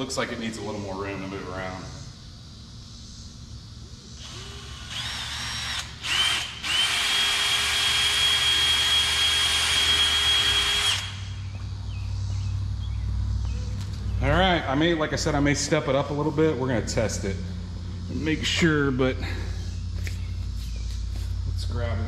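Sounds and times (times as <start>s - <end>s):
cordless drill whining: 4.2s - 11.4s.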